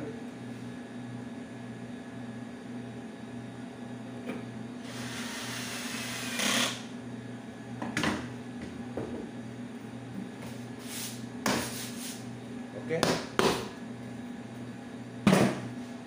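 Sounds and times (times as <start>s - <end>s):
cordless drill whirring: 4.8s - 6.8s.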